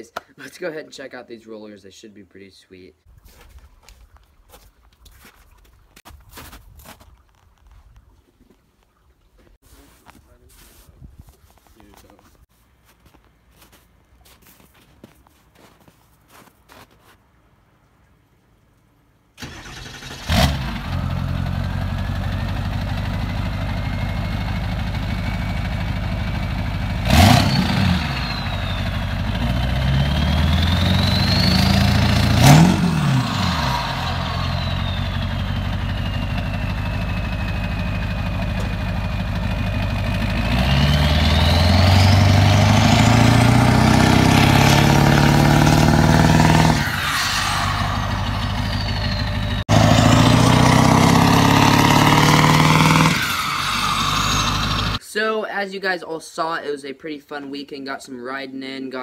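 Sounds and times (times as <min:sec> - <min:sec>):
diesel engine revving: 0:19.4 - 0:55.0
turbo whine: 0:21.1 - 0:55.0.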